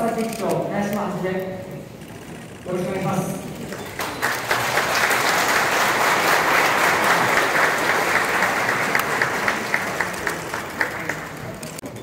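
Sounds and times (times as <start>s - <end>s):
crowd applauding: 3.7s - 11.9s.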